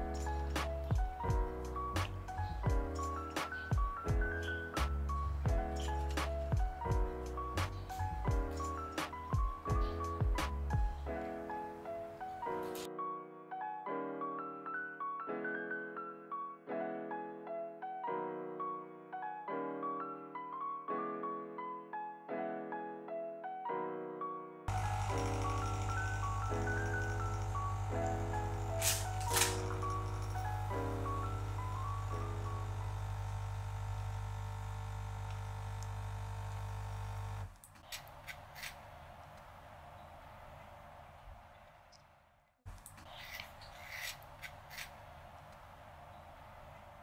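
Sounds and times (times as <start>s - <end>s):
gentle piano music: 0.0s - 33.6s
coffee machine humming: 24.7s - 37.5s.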